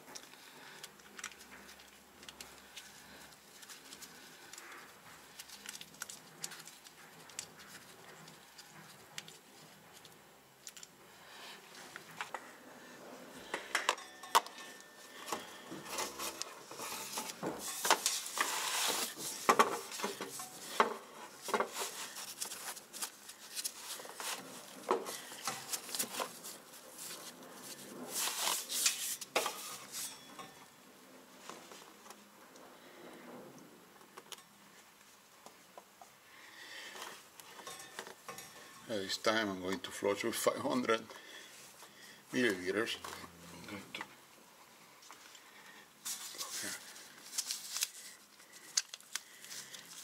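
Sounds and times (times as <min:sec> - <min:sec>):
plastic hose rustling and scraping: 0:00.0 - 0:10.9, 0:15.0 - 0:30.5, 0:44.6 - 0:50.0.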